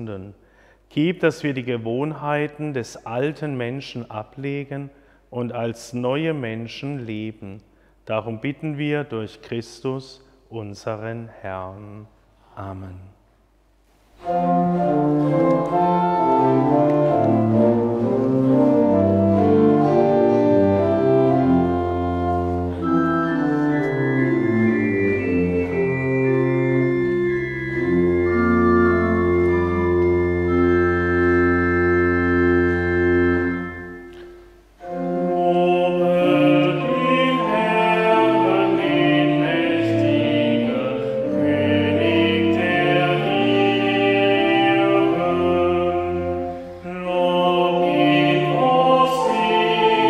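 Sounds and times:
church organ chords: 14.2s - 50.0s.

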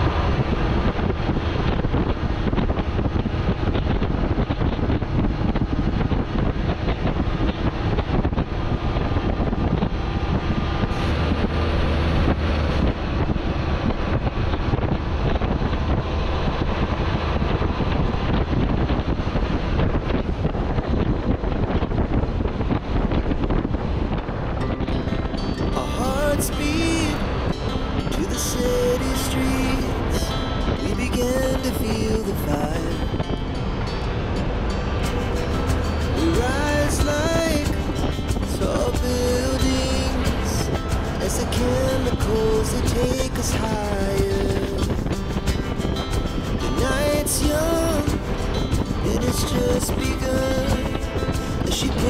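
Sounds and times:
road noise: 0.0s - 52.0s
truck diesel engine running: 0.0s - 52.0s
wind on microphone: 0.0s - 52.0s.

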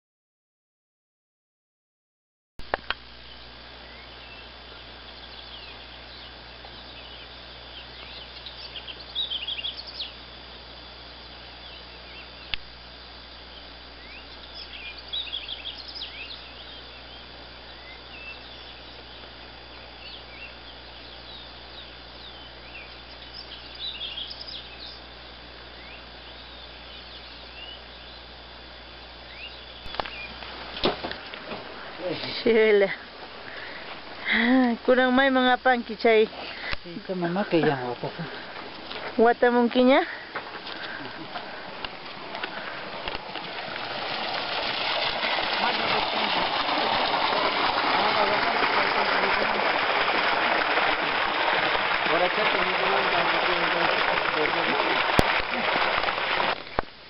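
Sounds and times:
low hum: 2.6s - 36.8s
background hiss: 2.6s - 57.0s
small birds chirping: 3.2s - 30.5s.

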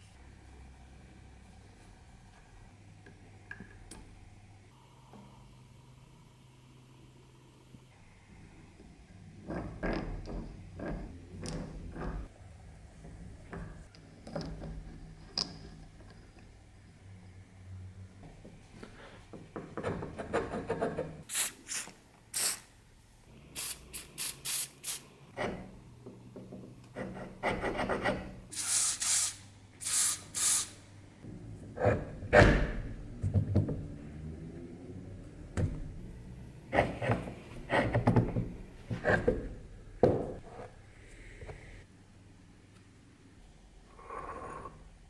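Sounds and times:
aerosol spray hissing: 21.3s - 22.7s, 23.5s - 25.1s, 28.5s - 30.8s.

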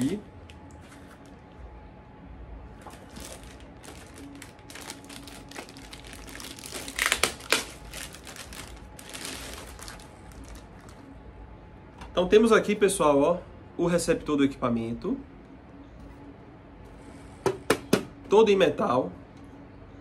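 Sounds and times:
plastic bag crinkling: 2.8s - 11.1s.

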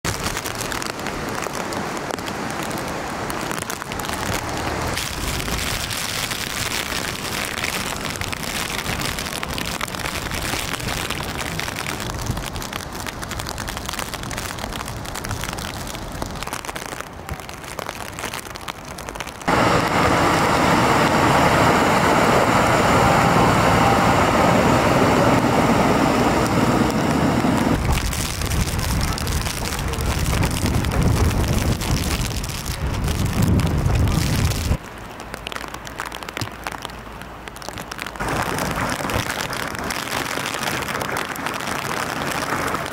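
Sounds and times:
heavy rain: 0.0s - 42.9s
rushing floodwater: 0.0s - 42.9s.

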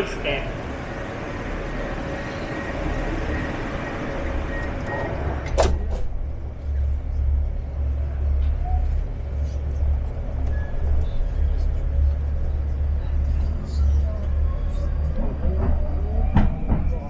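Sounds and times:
doors closing announcement: 0.0s - 17.0s
train rumble: 0.0s - 17.0s
train doors banging shut: 4.7s - 6.4s, 15.2s - 17.0s.

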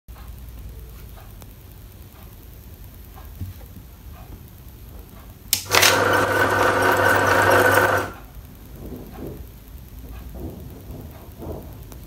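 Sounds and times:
banknote counter motor humming: 5.5s - 8.3s.

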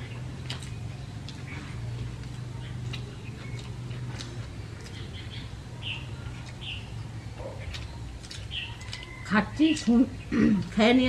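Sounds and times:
steady low hum: 0.0s - 11.0s
wet mouth clicks and lip smacks: 7.7s - 9.1s.

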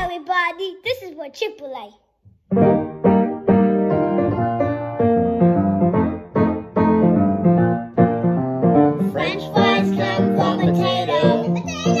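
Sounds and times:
piano playing chords: 2.5s - 12.0s.

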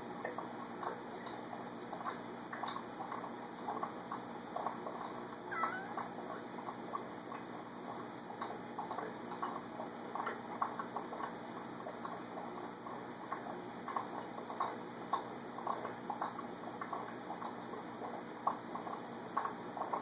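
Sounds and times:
aquarium water trickling: 0.0s - 20.0s
cat meowing: 5.5s - 6.1s.

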